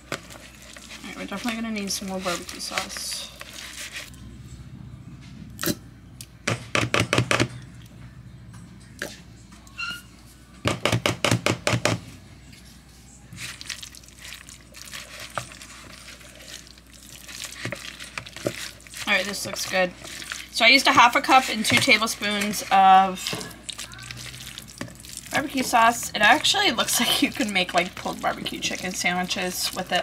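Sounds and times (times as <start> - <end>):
wet stirring: 0.0 - 4.2, 13.2 - 30.0.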